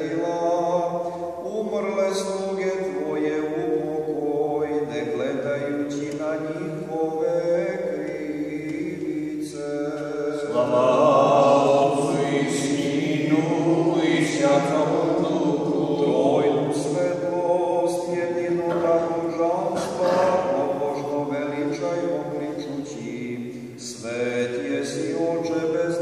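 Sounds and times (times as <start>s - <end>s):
group of voices chanting: 10.5s - 17.2s.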